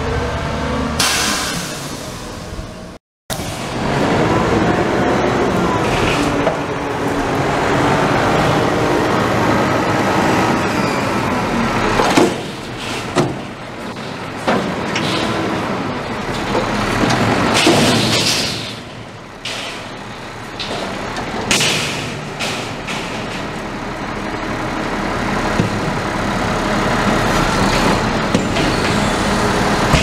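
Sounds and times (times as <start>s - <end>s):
garbage truck engine and hydraulics: 0.0s - 30.0s
loud metal bangs: 12.0s - 23.8s.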